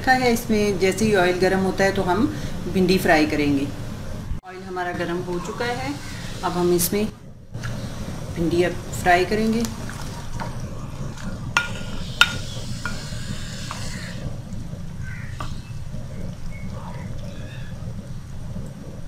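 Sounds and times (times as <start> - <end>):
okra sizzling in hot oil: 4.6 - 7.0, 7.6 - 19.0.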